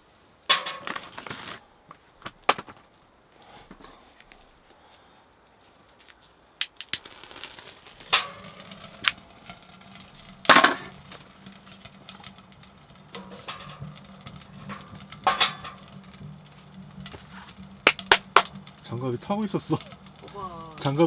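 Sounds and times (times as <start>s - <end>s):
wood loaded into stove: 0.5s - 1.6s, 8.0s - 21.0s.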